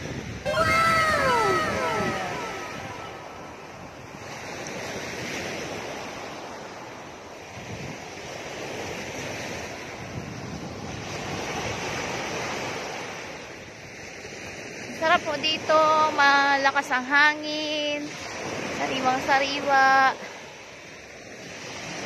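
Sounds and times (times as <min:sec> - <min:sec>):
wind blowing on microphone: 0:00.0 - 0:06.5, 0:07.4 - 0:13.0
sea waves breaking on beach: 0:00.0 - 0:22.0.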